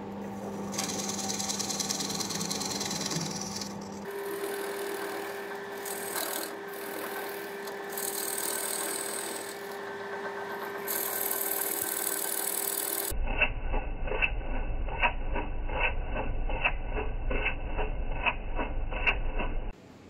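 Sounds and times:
wood lathe humming: 0:00.0 - 0:13.1
turning tool cutting wood hiss: 0:00.7 - 0:13.1.

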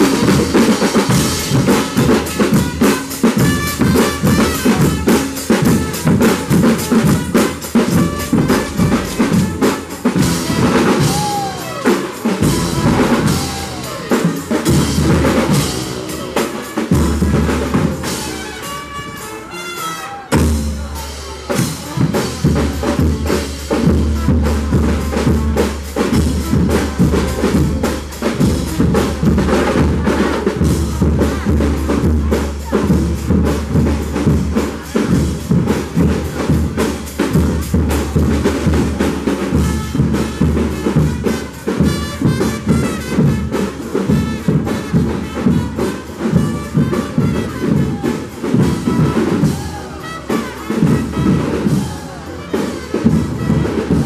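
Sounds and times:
brass band playing dance tune: 0:00.0 - 0:54.0
marching drums: 0:00.0 - 0:54.0.

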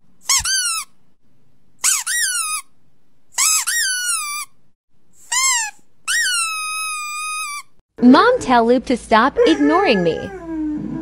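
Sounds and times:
high-pitched squeaks: 0:03.4 - 0:04.6, 0:05.2 - 0:07.8.

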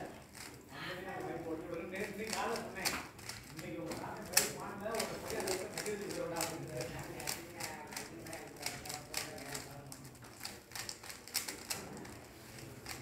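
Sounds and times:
puzzle cube clicking: 0:02.0 - 0:12.2.

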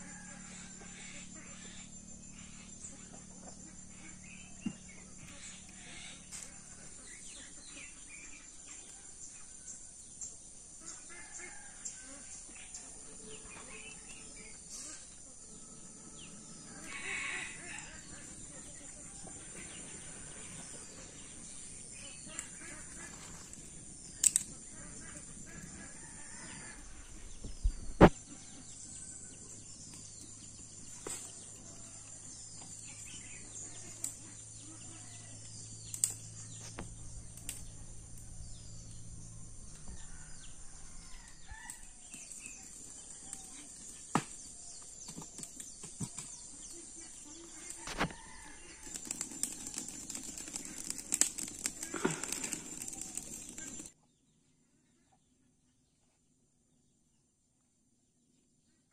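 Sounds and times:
birds chirping: 0:00.0 - 0:09.4, 0:10.2 - 0:54.0
insects buzzing: 0:00.0 - 0:54.0
rustling and crackling: 0:40.6 - 0:54.0.

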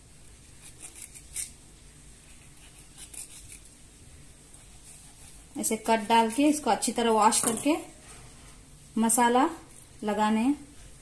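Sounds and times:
knife scraping cuts into fish: 0:00.6 - 0:01.6, 0:02.2 - 0:03.7, 0:04.6 - 0:05.6.

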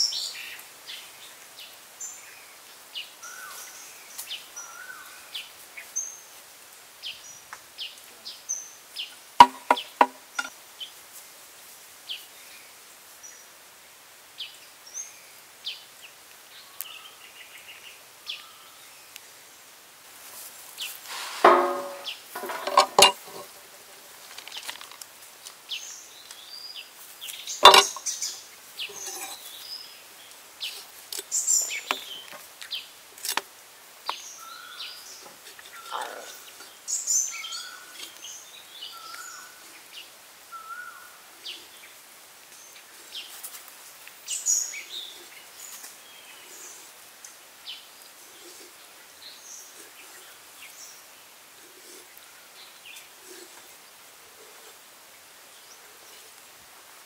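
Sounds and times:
birds chirping: 0:08.5 - 0:10.5, 0:20.8 - 0:24.7, 0:25.7 - 0:32.9
cleaver knocking and cutting: 0:09.4 - 0:10.5, 0:21.4 - 0:23.5, 0:27.6 - 0:28.0
metal tray clatter: 0:21.4 - 0:23.6, 0:27.6 - 0:28.0, 0:28.9 - 0:29.4.

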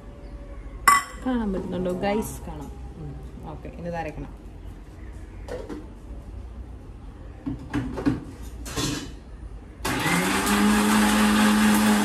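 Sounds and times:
mixer grinder motor running: 0:09.9 - 0:12.0.

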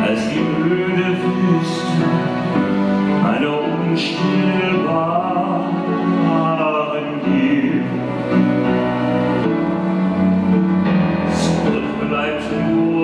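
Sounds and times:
man singing operatically: 0:00.0 - 0:02.6, 0:03.2 - 0:08.2, 0:11.3 - 0:13.0
orchestral backing music: 0:00.0 - 0:13.0.

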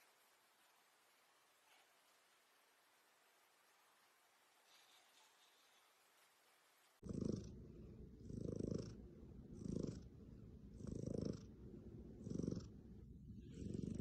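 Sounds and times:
cat purring: 0:07.0 - 0:14.0.

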